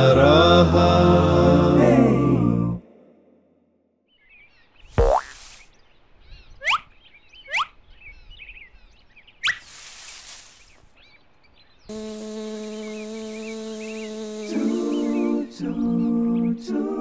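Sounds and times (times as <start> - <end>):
birds chirping: 4.0 - 17.0.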